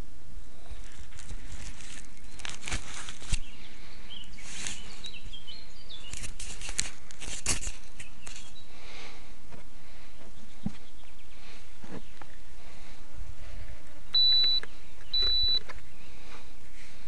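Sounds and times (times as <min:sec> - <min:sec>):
steady hiss and rumble: 0:00.0 - 0:17.0
camera handling clicks and rustles: 0:00.9 - 0:03.5, 0:06.0 - 0:08.5
faint high bird chirps: 0:14.1 - 0:16.1.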